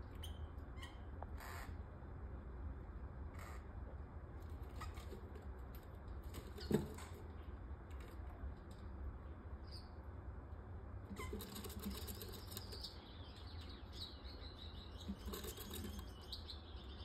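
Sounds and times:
faint bird chirp: 0.0s - 1.8s, 9.6s - 10.1s, 11.1s - 17.0s.

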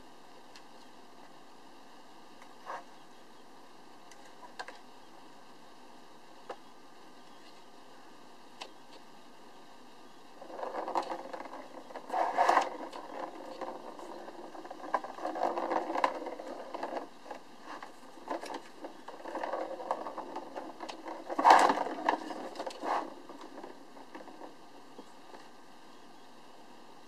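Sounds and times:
ball rattling around plastic track: 10.4s - 25.4s.

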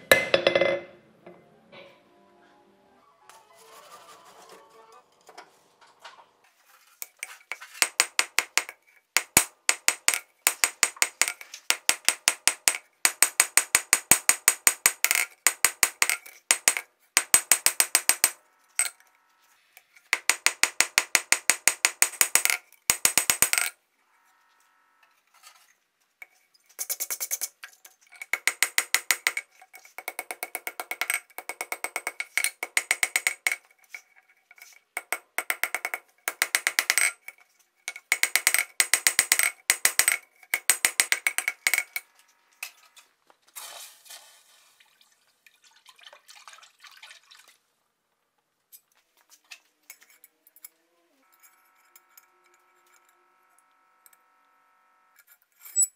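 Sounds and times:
hammer striking steel on anvil: 0.0s - 0.9s.

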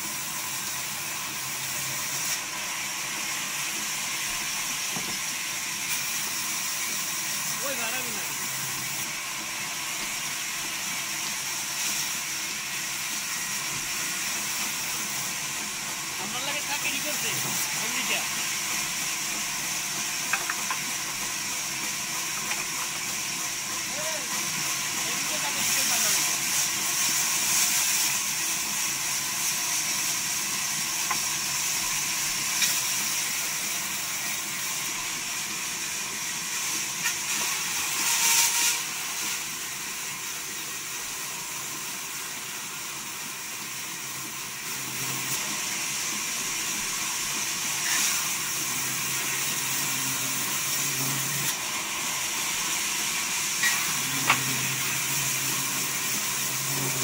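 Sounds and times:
band saw cutting wood: 16.1s - 18.8s, 37.0s - 39.4s, 47.6s - 57.0s.

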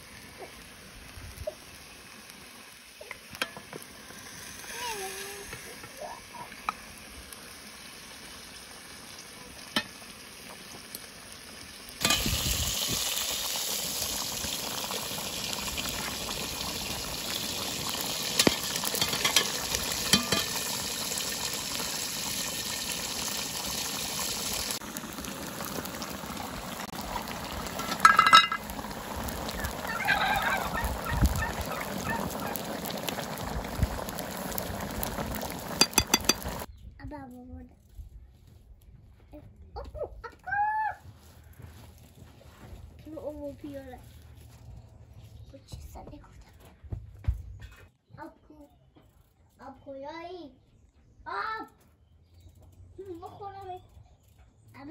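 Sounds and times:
stew boiling and sizzling: 0.0s - 37.4s, 40.8s - 46.0s
ladle clicking against pot: 35.8s - 36.5s.

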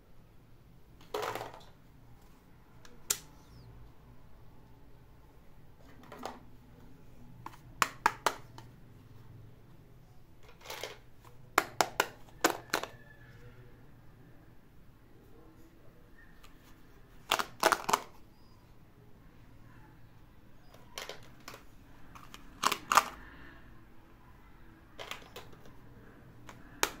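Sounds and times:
plastic toy pieces clicking: 11.6s - 12.9s, 17.2s - 18.1s, 20.8s - 21.6s, 22.2s - 23.2s, 25.0s - 25.8s, 26.5s - 27.0s.

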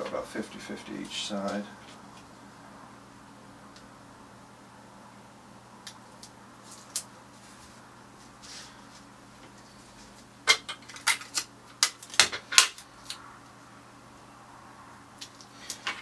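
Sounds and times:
tape crackling and tearing: 5.8s - 7.7s, 10.8s - 13.2s.

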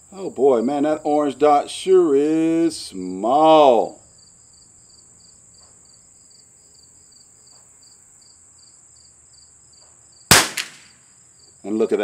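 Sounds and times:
crickets chirping: 0.0s - 12.0s
rifle shot: 10.3s - 11.0s.

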